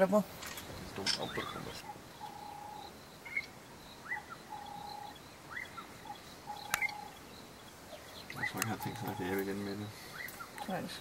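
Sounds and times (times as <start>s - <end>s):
bird calling whistled notes: 1.2s - 7.2s.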